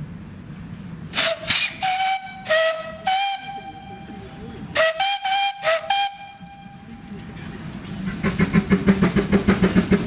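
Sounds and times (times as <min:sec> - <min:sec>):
steam locomotive whistle toots: 0:01.1 - 0:07.0.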